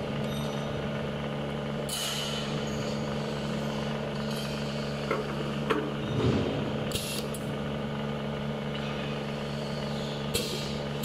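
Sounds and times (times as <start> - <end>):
machine low hum: 0.0 - 11.0
compressed air hiss: 6.9 - 7.4.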